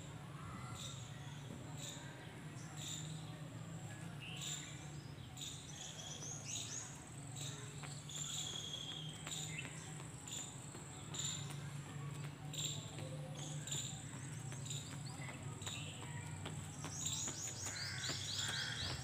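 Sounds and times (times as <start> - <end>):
birds chirping: 4.2 - 19.0.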